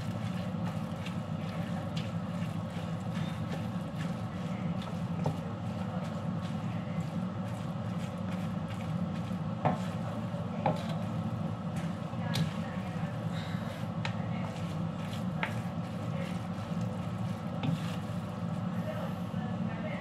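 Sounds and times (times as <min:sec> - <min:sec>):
spatula scraping noodles in wok: 0:00.0 - 0:18.8.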